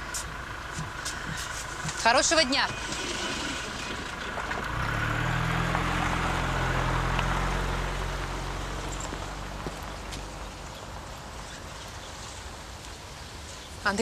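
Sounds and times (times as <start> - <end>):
minibus engine pulling away: 2.7 - 12.7.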